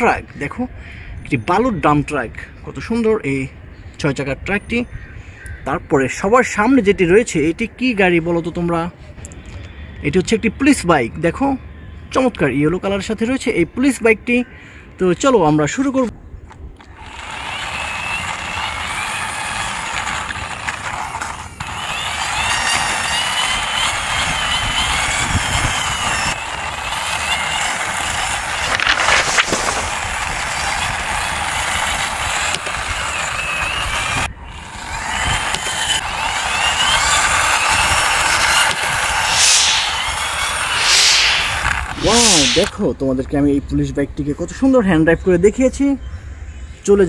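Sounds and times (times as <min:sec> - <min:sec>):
plastic wheels grinding on concrete: 0:16.8 - 0:39.4, 0:40.0 - 0:40.8
faint wavering whine: 0:37.8 - 0:42.7.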